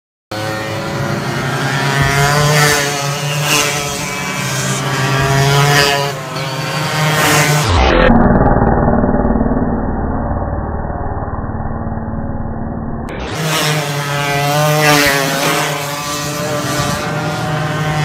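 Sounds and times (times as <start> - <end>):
go-kart engines revving: 0.3 - 9.8, 13.1 - 18.0.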